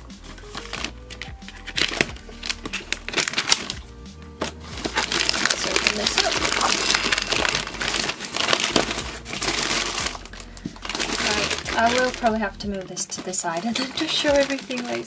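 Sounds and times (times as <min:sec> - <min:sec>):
plastic mailer bag crinkling: 0:00.0 - 0:15.0.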